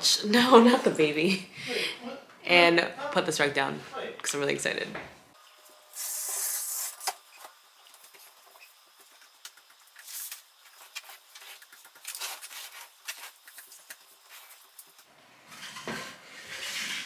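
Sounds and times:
curtain sliding along rod: 0:15.4 - 0:17.0.

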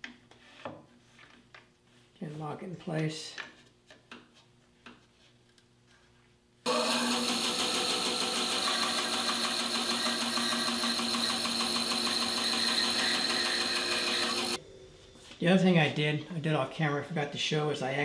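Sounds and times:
band saw cutting wood: 0:06.7 - 0:14.6.

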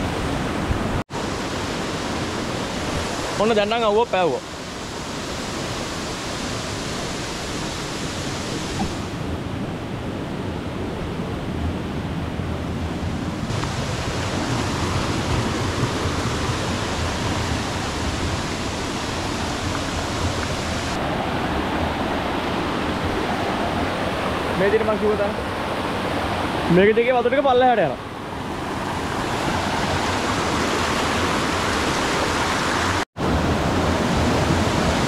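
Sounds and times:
waterfall rushing: 0:13.5 - 0:27.2, 0:28.4 - 0:35.0.

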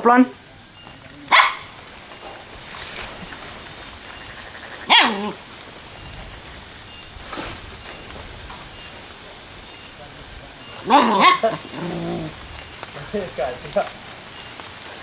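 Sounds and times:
dog yelping: 0:01.2 - 0:01.8, 0:04.2 - 0:05.4, 0:10.8 - 0:12.3.

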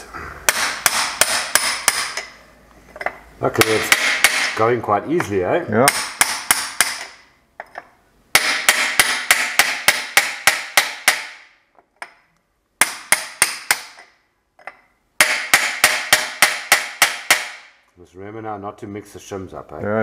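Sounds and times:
hammer striking metal: 0:00.5 - 0:02.4, 0:03.0 - 0:04.6, 0:05.2 - 0:12.2, 0:12.8 - 0:17.8.

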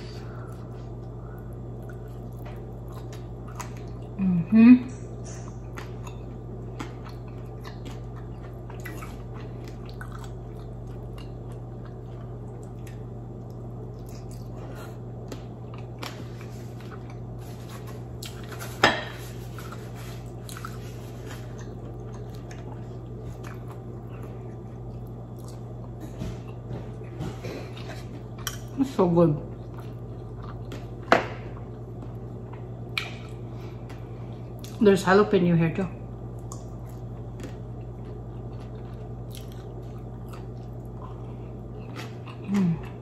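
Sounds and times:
steady low hum: 0:00.0 - 0:43.0
chewing and wet mouth clicks: 0:36.4 - 0:41.2.

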